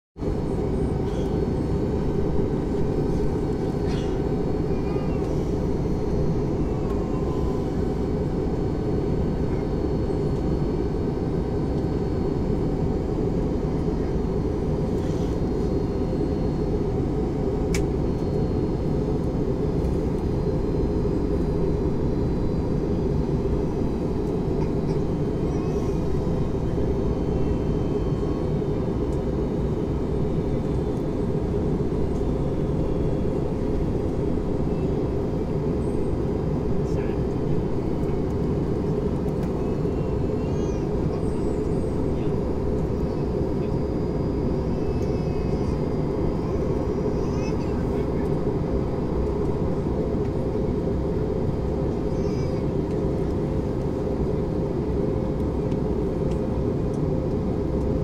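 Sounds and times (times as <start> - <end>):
airplane cabin noise: 0.2 - 58.0
faint click: 17.7 - 17.9.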